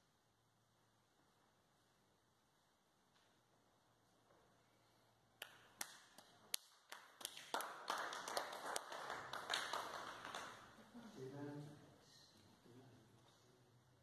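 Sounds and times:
hands clapping: 0:05.4 - 0:11.0.

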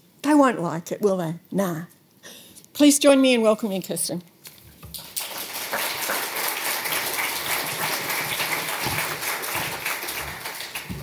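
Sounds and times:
audience applauding: 0:04.9 - 0:11.0.

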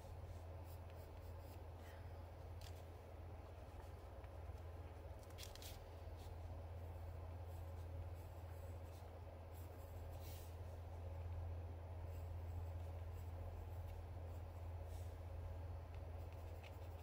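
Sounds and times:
steady low hum: 0:00.0 - 0:17.0
pencil scratching on paper: 0:12.0 - 0:14.8, 0:16.2 - 0:17.0.

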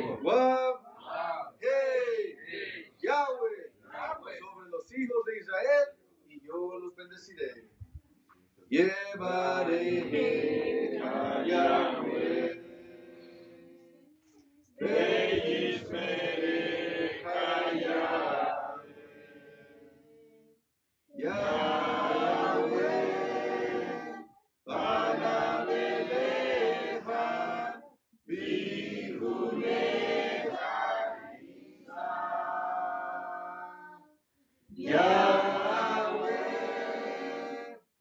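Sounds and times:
congregation singing a chant: 0:00.0 - 0:01.5, 0:09.1 - 0:14.0, 0:14.8 - 0:20.0, 0:21.2 - 0:34.0, 0:34.8 - 0:37.9.

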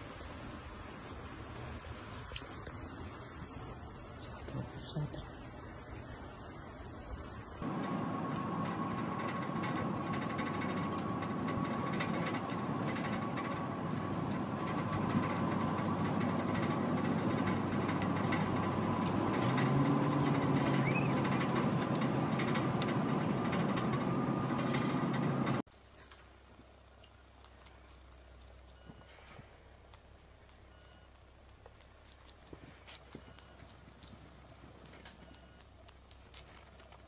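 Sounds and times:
low hum: 0:00.0 - 0:37.0
thin steady whine: 0:00.0 - 0:37.0
car engine running in cabin: 0:07.6 - 0:25.7.

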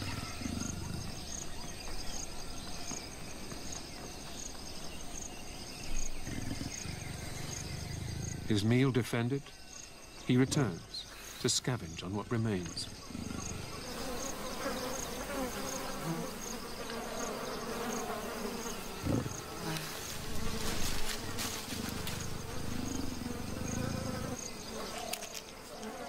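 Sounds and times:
flies buzzing: 0:12.3 - 0:26.0.

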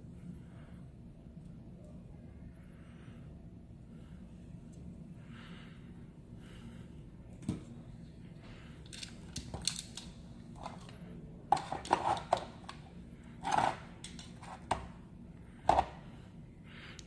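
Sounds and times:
plastic parts clicking: 0:08.8 - 0:11.0.

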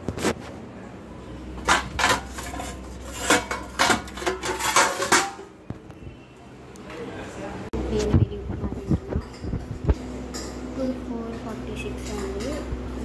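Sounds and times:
steel plate and spoon clinking: 0:01.6 - 0:05.5.

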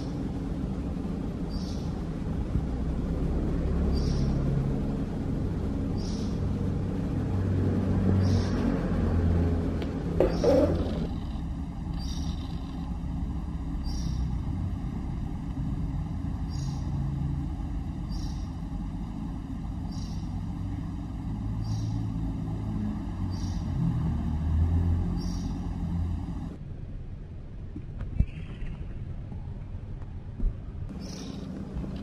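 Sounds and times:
low rumble of vehicle engines: 0:00.0 - 0:32.0
bird chirping high: 0:10.2 - 0:13.0, 0:13.7 - 0:14.4, 0:18.0 - 0:18.6, 0:19.8 - 0:20.4, 0:21.6 - 0:22.2, 0:23.2 - 0:23.8, 0:25.1 - 0:26.0, 0:30.9 - 0:31.5.

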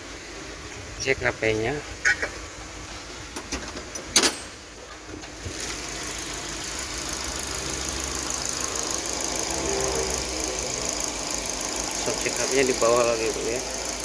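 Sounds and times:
engine cover clunk: 0:03.3 - 0:05.6
pickup engine idling: 0:05.5 - 0:14.0.

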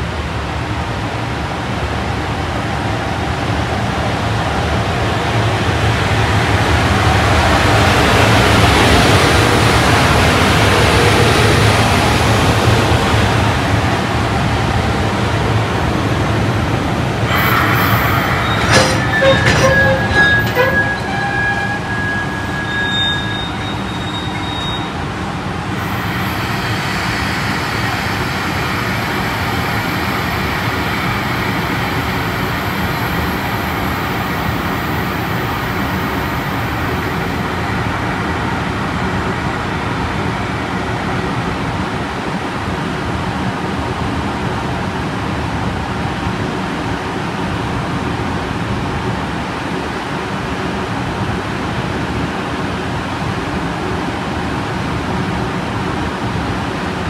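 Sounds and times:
train wheels rumbling on rails: 0:00.0 - 0:43.4
high-pitched squeals: 0:17.3 - 0:25.1, 0:25.8 - 0:38.2.

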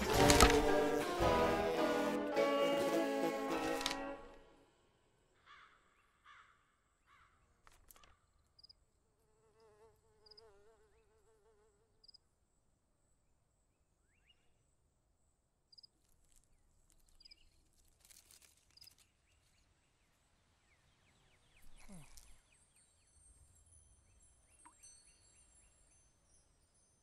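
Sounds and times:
wavering insect buzz: 0:08.6 - 0:12.2
light clicks and rustles: 0:16.0 - 0:19.6.

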